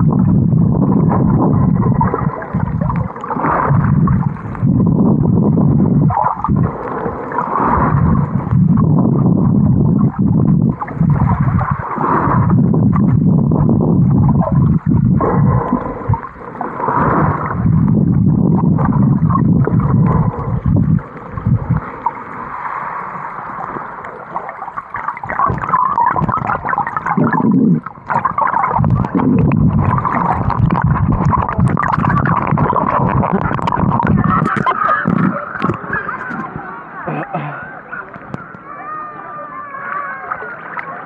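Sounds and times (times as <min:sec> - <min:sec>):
water rushing underwater: 0:00.0 - 0:41.0.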